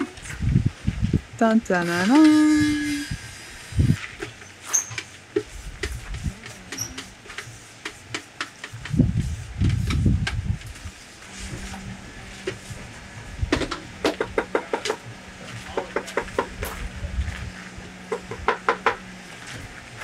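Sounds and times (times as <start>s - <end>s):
low hum: 8.8s - 15.8s.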